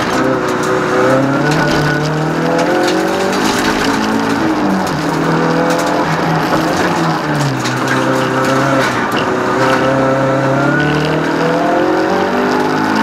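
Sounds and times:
race car engine revving: 0:00.0 - 0:13.0.

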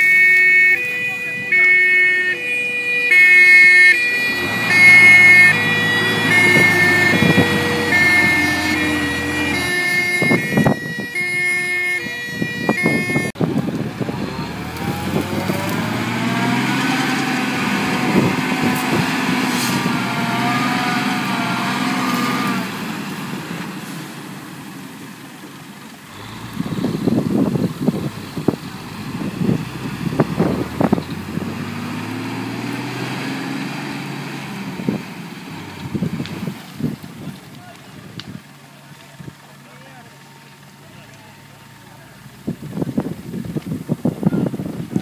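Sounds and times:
fire engine two-tone siren: 0:00.0 - 0:22.8, 0:26.1 - 0:35.0
truck engine running: 0:01.3 - 0:45.0.

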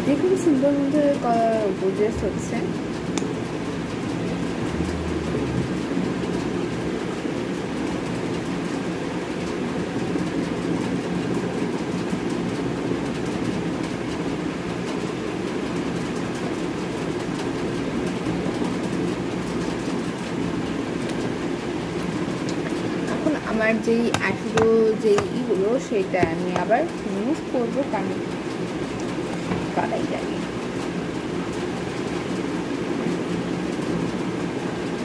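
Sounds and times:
steady rumbling background noise: 0:00.0 - 0:35.0.

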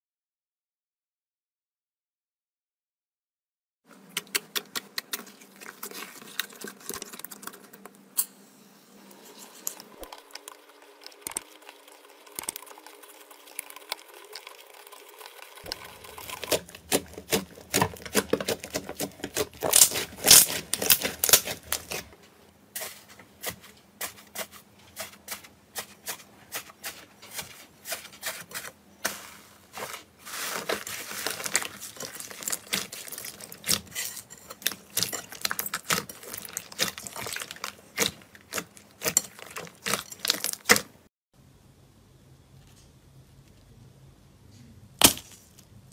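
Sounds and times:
slime crackling and popping: 0:15.6 - 0:22.0, 0:31.1 - 0:33.8, 0:34.6 - 0:40.8.

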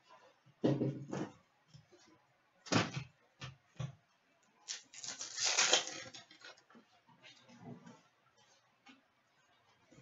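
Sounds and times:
foil wrapper crinkling: 0:04.7 - 0:06.6.

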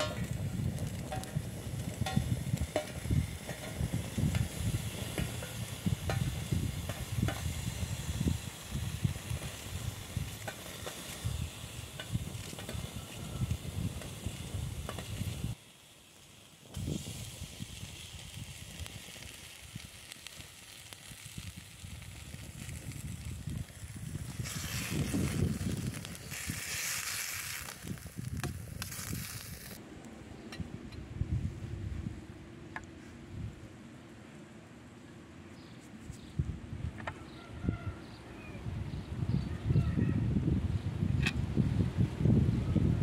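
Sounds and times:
low rumbling gusts: 0:00.0 - 0:10.5, 0:21.2 - 0:26.7, 0:27.8 - 0:33.9, 0:38.6 - 0:43.0
fat sizzling in frying pan: 0:00.0 - 0:29.8
wood fire crackling: 0:00.0 - 0:30.1.

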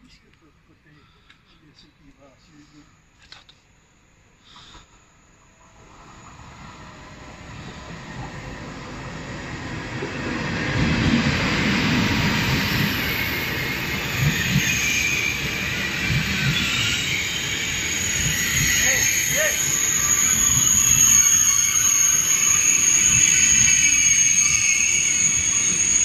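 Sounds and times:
high-speed train rolling past: 0:04.2 - 0:26.0
high squeal of braking wheels: 0:11.8 - 0:26.0.

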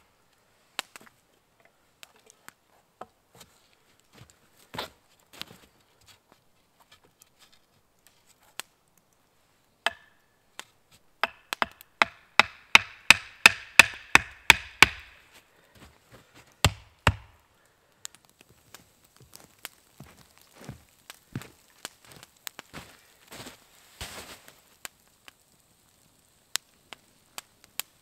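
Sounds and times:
axe chopping wood: 0:09.9 - 0:10.1, 0:11.2 - 0:15.2, 0:16.6 - 0:17.4.

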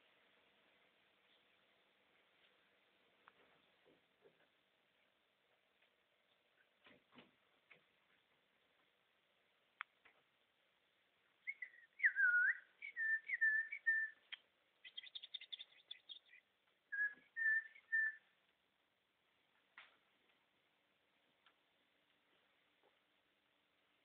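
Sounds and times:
parrots whistling: 0:11.4 - 0:14.2, 0:16.9 - 0:18.2.

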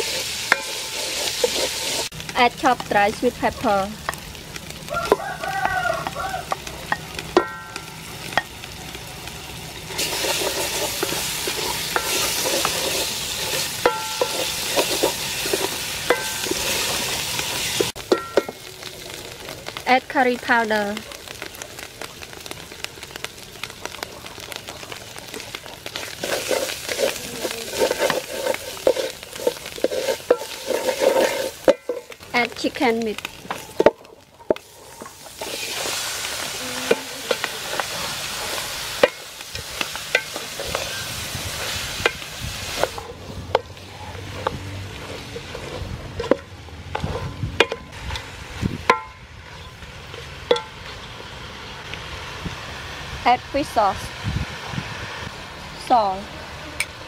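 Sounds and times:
wooden spoon scraping pot: 0:00.0 - 0:02.1, 0:09.8 - 0:18.5, 0:25.2 - 0:48.2
paste sizzling in hot oil: 0:00.0 - 0:47.2.

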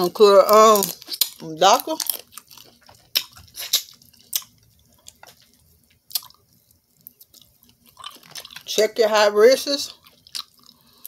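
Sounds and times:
quiet chewing: 0:00.7 - 0:08.7, 0:09.9 - 0:11.0
lip smacks and sucking clicks: 0:03.1 - 0:04.5.

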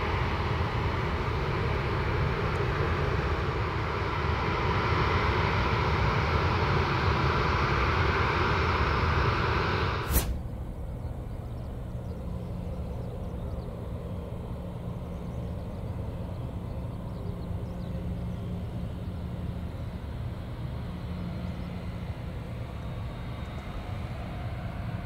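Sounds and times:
faint high whine: 0:00.0 - 0:25.0
jet engines low hum: 0:00.0 - 0:25.0.

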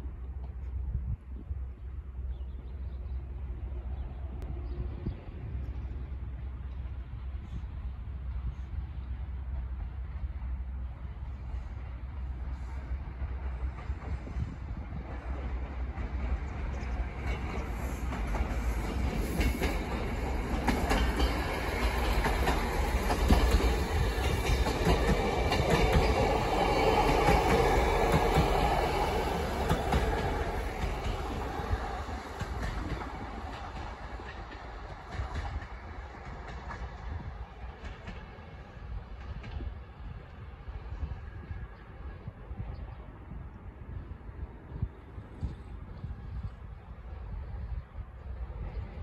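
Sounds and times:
diesel train passing: 0:00.0 - 0:49.0
wheels clacking over rail joints: 0:15.1 - 0:39.7.

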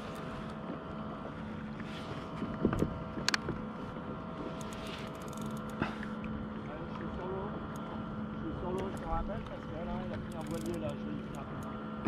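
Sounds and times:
water lapping against hull: 0:00.0 - 0:12.0
wind on microphone: 0:02.0 - 0:04.4
fishing reel clicking: 0:04.6 - 0:05.8, 0:10.0 - 0:11.7.

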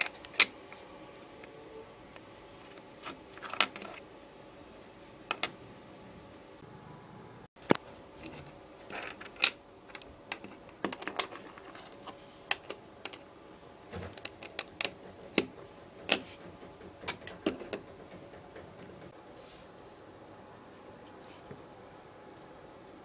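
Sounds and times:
plastic bricks clicking together: 0:14.1 - 0:15.5.

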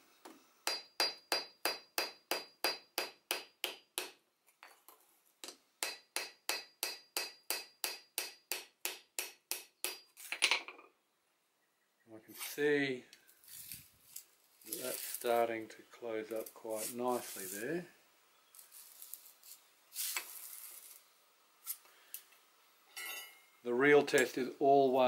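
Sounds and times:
hammer tapping steel on anvil: 0:00.6 - 0:04.8, 0:05.4 - 0:10.1.

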